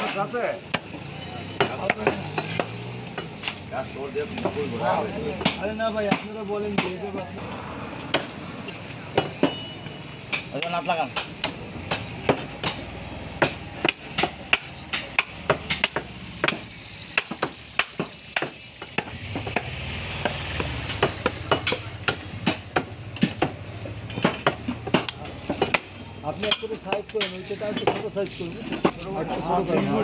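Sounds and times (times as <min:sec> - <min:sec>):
cleaver chopping meat on wood: 0:01.7 - 0:03.6, 0:05.4 - 0:07.0, 0:13.4 - 0:28.1.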